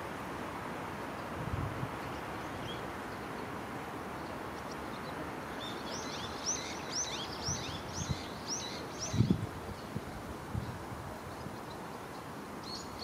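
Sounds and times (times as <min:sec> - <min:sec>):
outdoor background hiss: 0:00.0 - 0:13.0
songbird chirping: 0:02.1 - 0:09.9.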